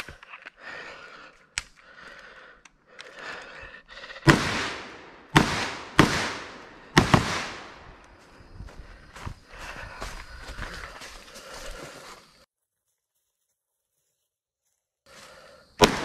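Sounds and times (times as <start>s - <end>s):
rifle shots echoing: 4.3s - 7.9s, 15.8s - 16.0s.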